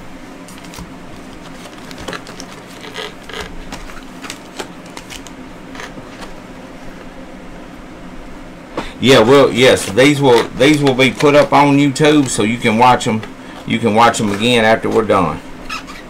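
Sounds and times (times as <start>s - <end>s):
faint steady hum: 0.0s - 16.0s
cardboard box rustling: 0.5s - 6.4s.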